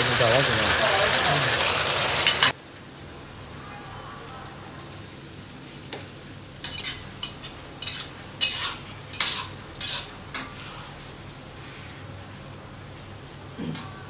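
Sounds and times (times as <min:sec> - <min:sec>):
food sizzling: 0:00.0 - 0:02.8, 0:04.3 - 0:11.3
metal spatula scraping a wok: 0:06.6 - 0:11.2.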